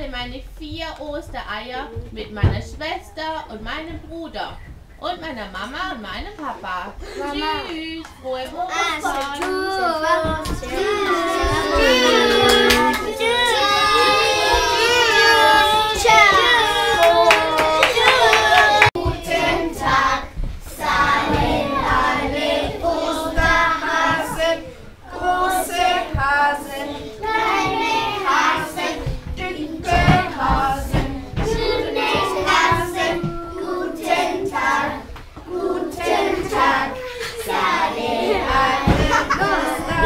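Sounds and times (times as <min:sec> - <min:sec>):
children singing: 0:08.7 - 0:40.0.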